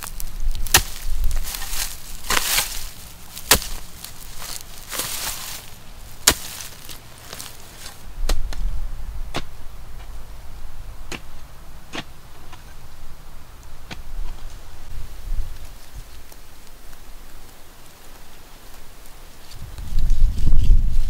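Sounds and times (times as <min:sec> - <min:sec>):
rustle of earth and leaves: 0:00.0 - 0:21.0
hoe chopping into soil: 0:00.1 - 0:08.7, 0:09.3 - 0:09.6, 0:11.1 - 0:12.6.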